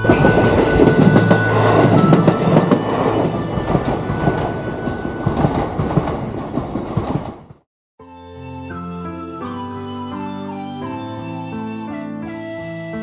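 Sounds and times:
electric train passing: 0:00.0 - 0:07.6
wheels clicking over rail joints: 0:00.0 - 0:07.6.

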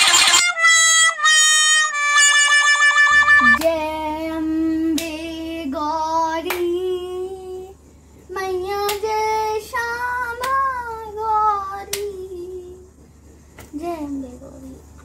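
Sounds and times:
instrumental jingle: 0:00.0 - 0:03.6
steady low hum: 0:00.0 - 0:15.0
girl singing: 0:03.2 - 0:13.0, 0:13.7 - 0:14.9
hand claps: 0:03.5 - 0:03.8, 0:04.9 - 0:05.2, 0:06.4 - 0:06.7, 0:08.8 - 0:09.1, 0:10.4 - 0:10.6, 0:11.9 - 0:12.1.

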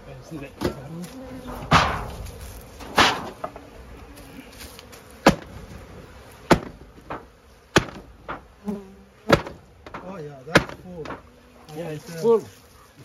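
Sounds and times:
honeybees buzzing: 0:00.0 - 0:13.0
wooden knocks of hive boxes: 0:00.4 - 0:11.4.

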